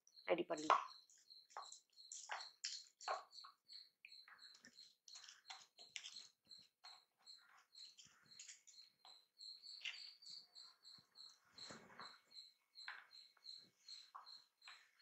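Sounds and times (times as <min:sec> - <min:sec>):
faint high chirp: 0:00.0 - 0:15.0.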